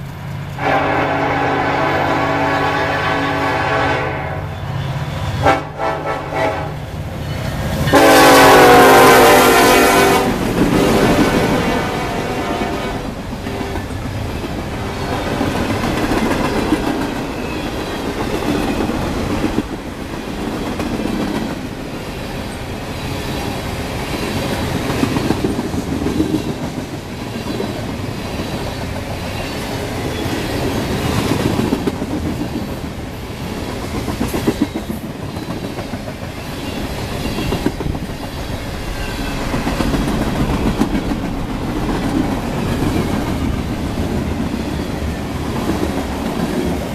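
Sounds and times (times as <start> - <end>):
freight train wheels rumbling: 0.0 - 46.9
clickety-clack over rail joints: 10.3 - 46.9.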